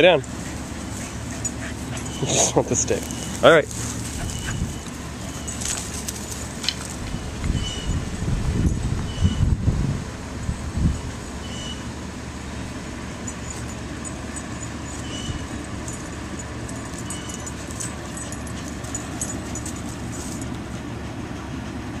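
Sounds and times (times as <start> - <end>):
low outdoor rumble: 0.0 - 22.0.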